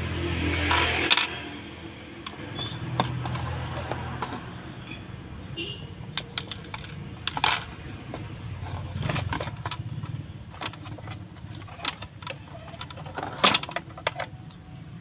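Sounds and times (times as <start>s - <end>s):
plastic and metal clicks and scrapes: 2.2s - 5.0s, 6.1s - 14.8s.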